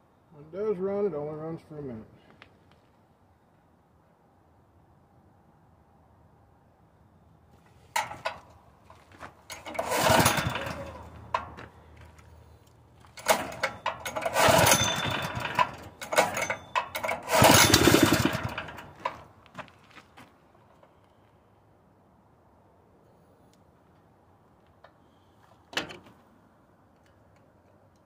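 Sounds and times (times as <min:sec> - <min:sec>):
engine turning over on pull start: 0:08.0 - 0:08.5, 0:09.4 - 0:11.6, 0:13.0 - 0:19.3.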